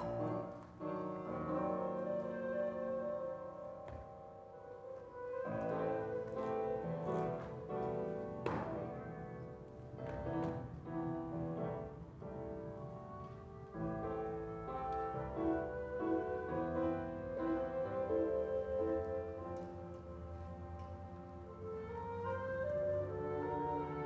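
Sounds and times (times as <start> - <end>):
classical music: 0.0 - 24.0.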